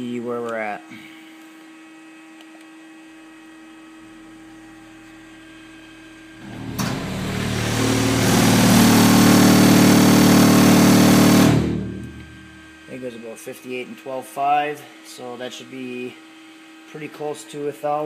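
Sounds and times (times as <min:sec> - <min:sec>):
faint steady hum: 0:00.0 - 0:18.0
subwoofer distorted low buzz: 0:03.6 - 0:13.1.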